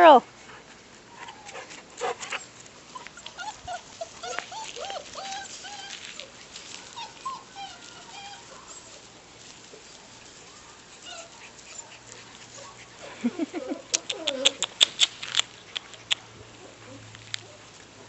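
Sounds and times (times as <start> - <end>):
puppies whimpering: 2.9 - 9.0, 10.5 - 15.1.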